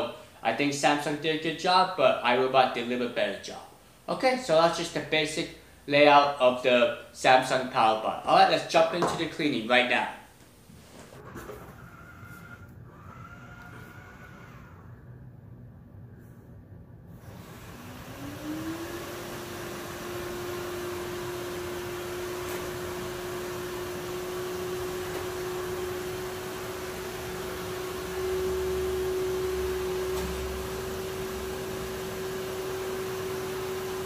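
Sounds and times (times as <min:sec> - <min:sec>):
robot vacuum motor whining: 0:11.6 - 0:15.0, 0:17.2 - 0:34.0.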